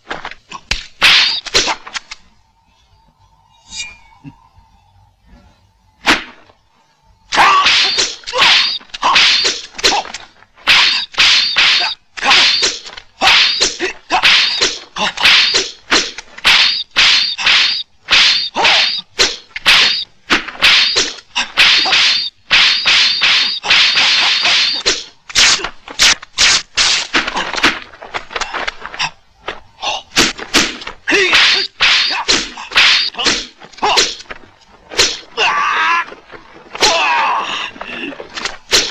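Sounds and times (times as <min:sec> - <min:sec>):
spear whooshes and whacks: 0:07.4 - 0:35.4, 0:37.7 - 0:38.9.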